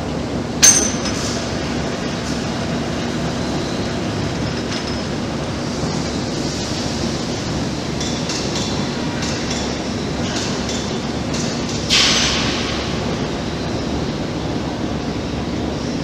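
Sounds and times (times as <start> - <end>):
boring mill mechanical rumble: 0.0 - 16.0.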